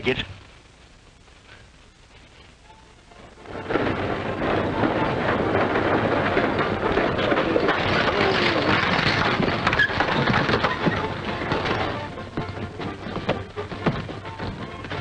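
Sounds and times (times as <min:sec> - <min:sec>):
horse hoofbeats: 0:02.8 - 0:15.0
wheels rumbling on dirt: 0:03.1 - 0:15.0.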